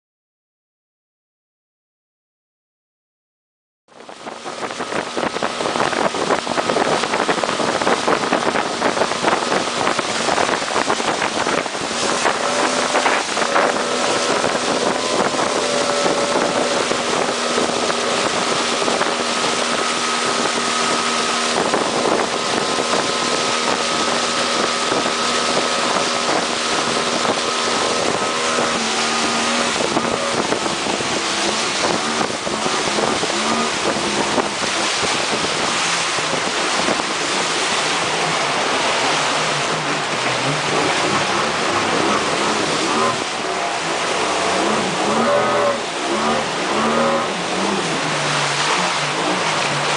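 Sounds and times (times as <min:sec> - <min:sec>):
water rushing and splashing: 0:03.9 - 0:49.9
wind on microphone: 0:03.9 - 0:49.9
outboard motor running: 0:04.0 - 0:49.9.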